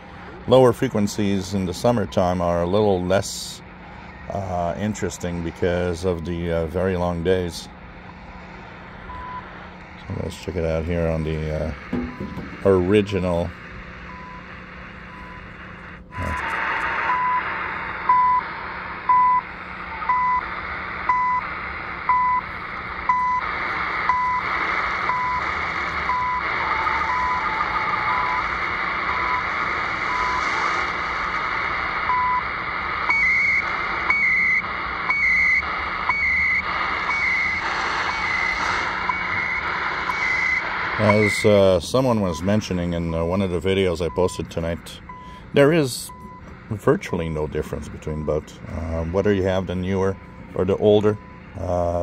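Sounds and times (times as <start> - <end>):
radio static hiss: 0.0 - 52.0
radio time signal beeps: 4.2 - 7.1, 9.0 - 9.5, 11.7 - 13.4, 14.0 - 30.7, 32.0 - 43.4, 44.0 - 52.0
radio click: 11.7 - 12.9, 32.6 - 41.6.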